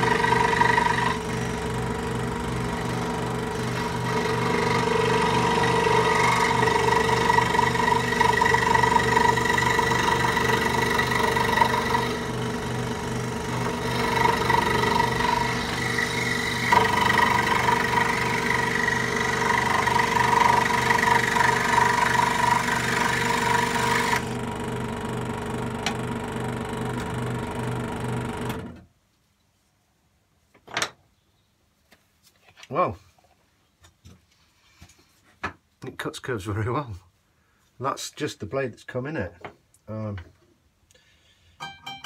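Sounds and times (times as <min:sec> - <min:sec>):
blade sawing through timber: 0:00.0 - 0:24.4
scroll saw running: 0:00.0 - 0:28.6.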